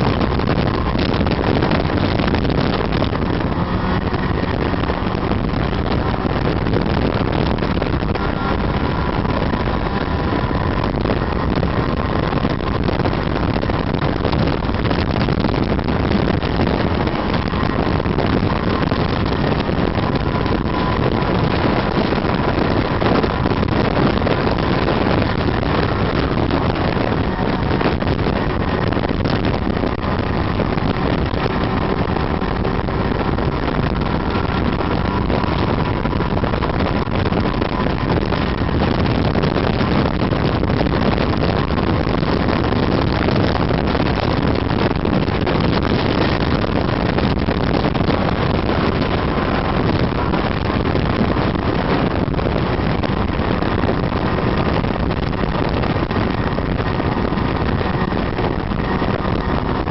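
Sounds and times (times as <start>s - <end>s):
snowmobile engine running: 0.0s - 59.9s
wind rushing over microphone: 0.0s - 59.9s.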